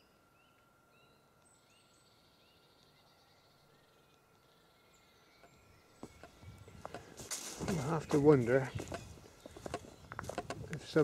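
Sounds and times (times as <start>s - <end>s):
faint high bird calls: 0.0s - 10.8s
small bird chirping: 0.0s - 11.0s.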